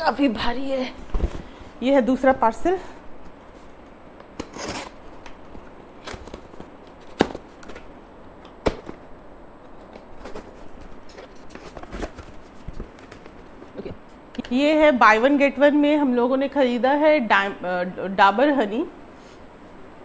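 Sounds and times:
knife slitting packing tape: 4.4s - 5.0s.

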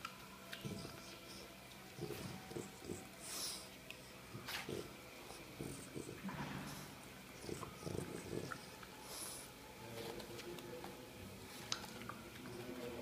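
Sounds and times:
dog snuffling and snorting: 0.6s - 3.7s, 4.3s - 9.5s.

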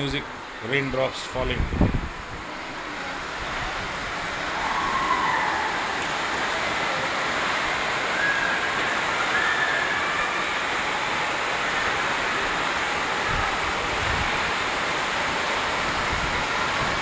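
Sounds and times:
rain on a metal roof: 0.0s - 17.0s.

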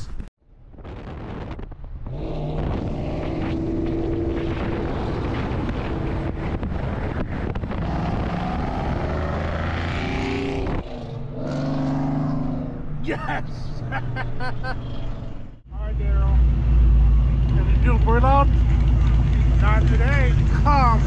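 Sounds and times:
road and wind noise: 0.0s - 21.0s
car engine running: 13.9s - 21.0s.

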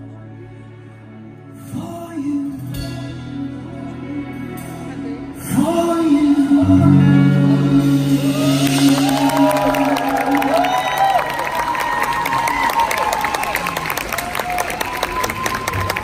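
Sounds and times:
sustained backing chords: 0.0s - 11.6s
man singing into microphone: 1.6s - 10.2s
crowd clapping and whistling: 8.5s - 16.0s.

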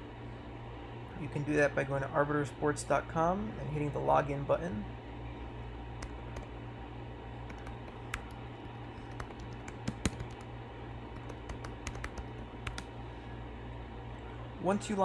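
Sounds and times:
steady low hum: 0.0s - 15.0s
computer keyboard typing: 6.0s - 6.5s, 7.5s - 10.5s, 11.1s - 12.9s.

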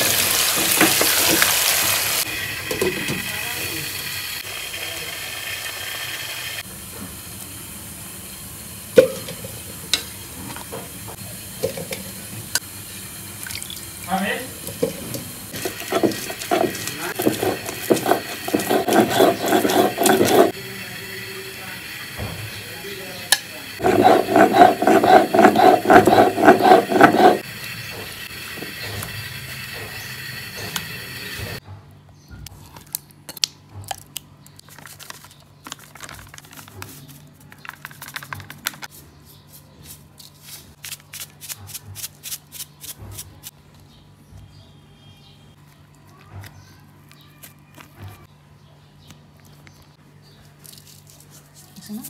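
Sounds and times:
potatoes sizzling in oil: 0.0s - 22.2s
stone roller grinding on stone slab: 14.7s - 20.6s, 23.8s - 31.5s.

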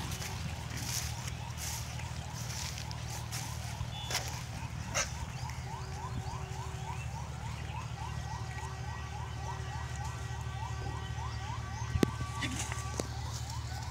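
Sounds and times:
steady low rumble: 0.0s - 8.4s
electronic siren whooping: 0.0s - 13.9s.

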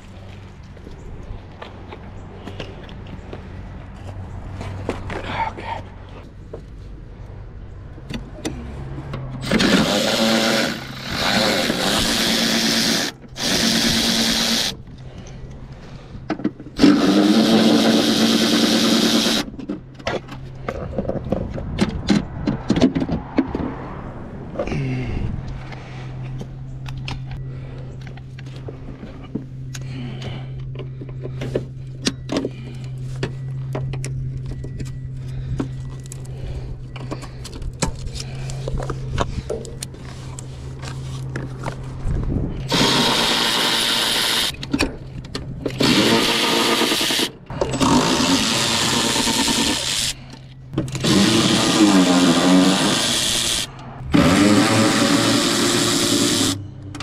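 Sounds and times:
cordless power tool running: 9.4s - 14.8s, 16.8s - 19.5s, 42.7s - 44.5s, 45.7s - 50.2s, 50.9s - 56.6s.

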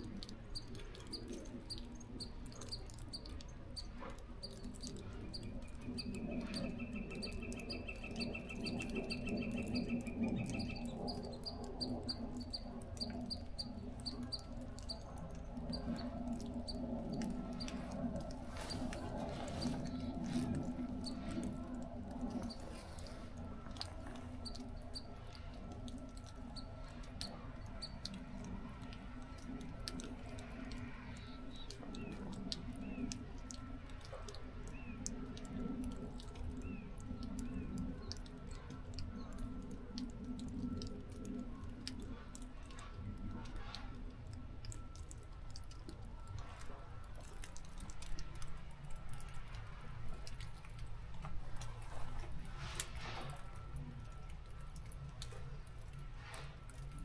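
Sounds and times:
faint ticks: 0.0s - 22.6s
low hum: 0.0s - 57.0s
low steady rumble: 0.0s - 57.0s
birds chipping: 0.2s - 23.2s.

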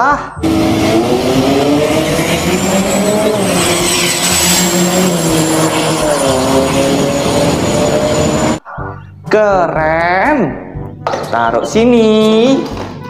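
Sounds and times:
vehicle engine running: 0.4s - 8.6s.

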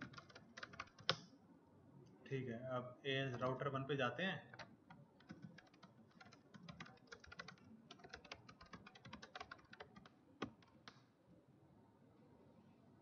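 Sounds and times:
keyboard typing: 0.0s - 1.2s, 4.4s - 11.0s.

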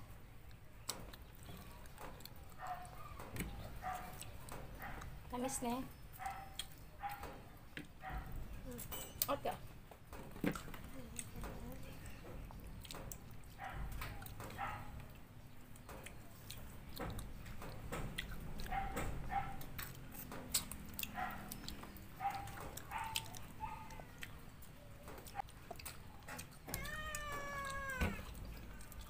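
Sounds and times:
people eating with hands: 0.0s - 29.0s
cat mewing: 26.6s - 28.8s.

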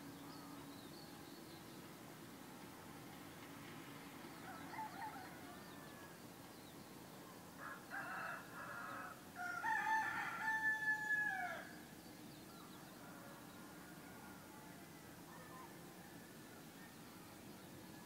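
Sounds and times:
rooster crowing: 4.4s - 6.2s, 7.6s - 11.8s.

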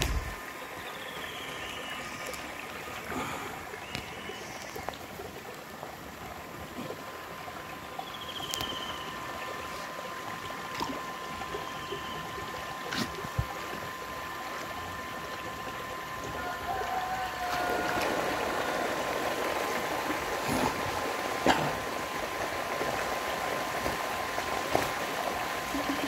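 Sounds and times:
faint hum: 0.0s - 26.0s
water trickling and sloshing: 0.0s - 26.0s.

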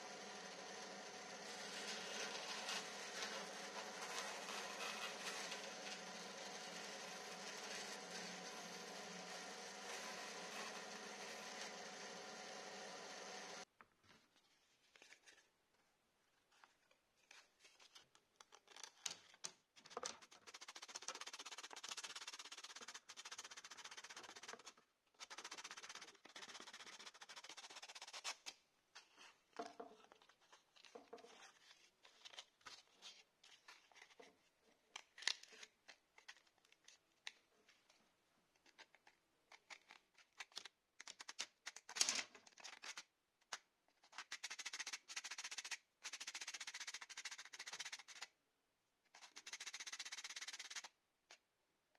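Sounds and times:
sandpaper rubbing: 0.0s - 13.6s, 20.2s - 28.4s, 44.1s - 48.3s, 49.1s - 50.9s.

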